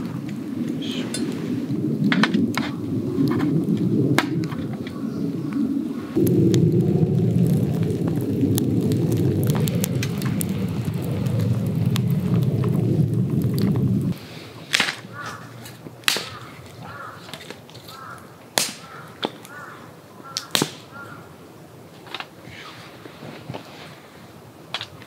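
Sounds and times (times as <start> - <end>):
wood fire crackling and popping: 0.0 - 22.5, 24.3 - 25.0
bird cawing: 4.8 - 6.2, 15.0 - 15.6, 16.2 - 21.4
twigs snapping: 6.2 - 19.7, 20.3 - 21.1.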